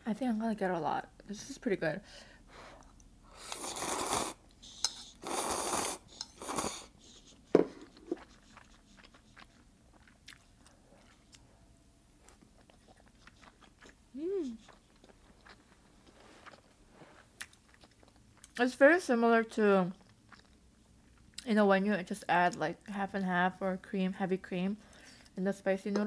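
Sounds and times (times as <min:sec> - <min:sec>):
quiet chewing: 0:06.1 - 0:11.6, 0:12.2 - 0:18.6, 0:19.9 - 0:21.5.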